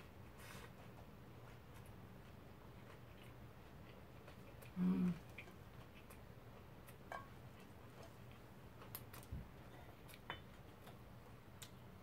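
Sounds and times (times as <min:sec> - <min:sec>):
faint chewing clicks: 0:00.7 - 0:12.0
person humming: 0:04.7 - 0:05.3.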